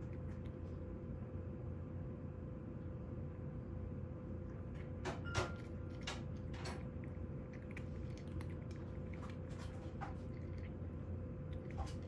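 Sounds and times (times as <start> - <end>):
cat crunching dry kibble: 0.0 - 1.1, 5.6 - 12.0
steady low hum: 0.0 - 12.0.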